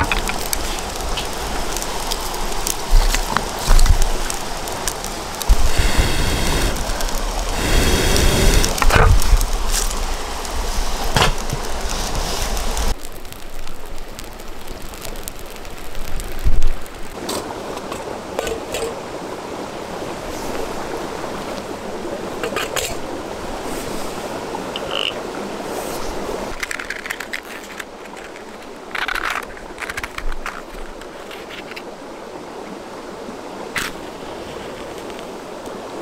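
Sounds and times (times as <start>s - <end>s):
river rushing: 0.0s - 13.0s, 14.5s - 36.0s
fire crackling: 0.0s - 22.4s, 25.7s - 31.8s.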